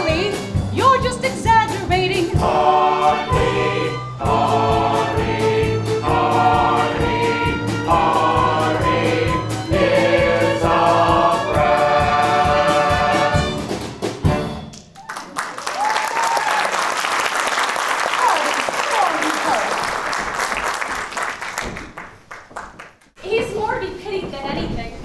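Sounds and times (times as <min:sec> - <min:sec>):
pit band playing: 0:00.0 - 0:15.0
ensemble singing in chorus: 0:02.4 - 0:13.7
audience applause: 0:15.0 - 0:23.0.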